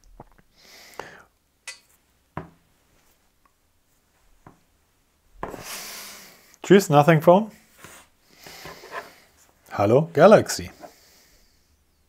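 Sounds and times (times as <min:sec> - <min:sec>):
soft rustle: 0:02.8 - 0:04.7, 0:07.6 - 0:09.7.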